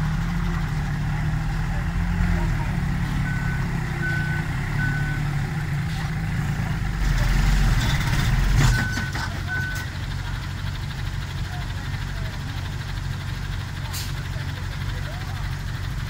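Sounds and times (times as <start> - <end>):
diesel truck engine: 0.0 - 16.0
reversing alarm beeps: 3.2 - 5.3.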